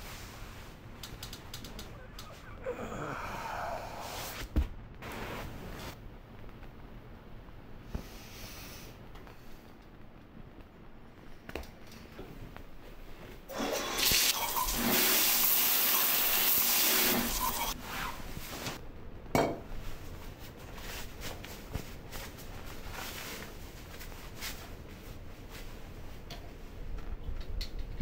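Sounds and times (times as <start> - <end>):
shower water spraying: 13.5 - 17.8.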